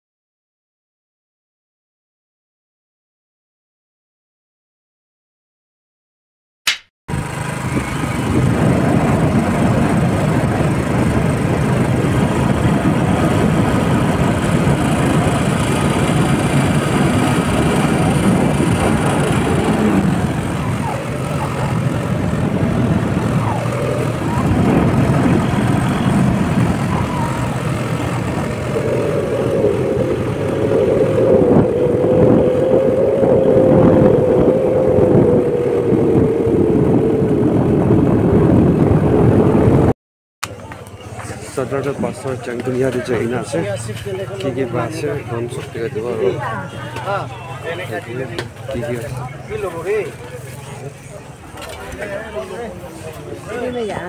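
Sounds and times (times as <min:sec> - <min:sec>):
motorcycle engine: 0:07.1 - 0:39.3
wind buffeting microphone: 0:07.1 - 0:39.9.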